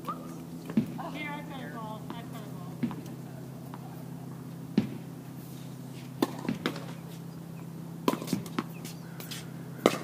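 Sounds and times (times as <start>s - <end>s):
tennis balls bouncing: 0.0s - 1.1s, 1.8s - 5.2s, 6.2s - 7.3s, 8.0s - 10.0s
tennis balls hit with rackets: 2.0s - 5.2s, 6.2s - 7.3s, 8.0s - 10.0s.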